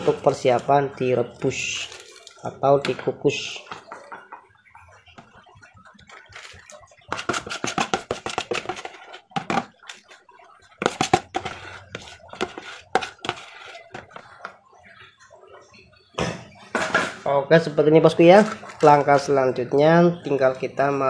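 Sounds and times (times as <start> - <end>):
metal spoon scraping plastic bowl: 6.0 - 14.6.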